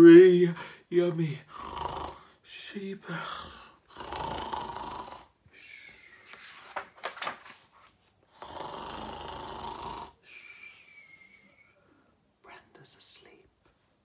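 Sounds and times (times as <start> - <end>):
man imitating snoring: 1.5 - 2.3, 3.4 - 5.3, 8.3 - 10.2.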